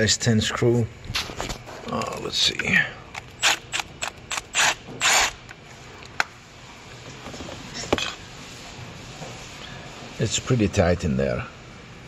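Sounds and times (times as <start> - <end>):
electric ratchet running: 3.2 - 5.5.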